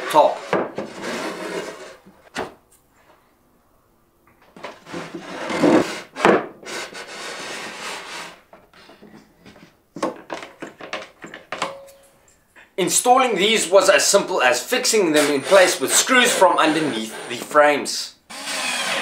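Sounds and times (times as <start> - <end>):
wooden panel sliding and scraping: 0.3 - 2.2, 4.6 - 9.8.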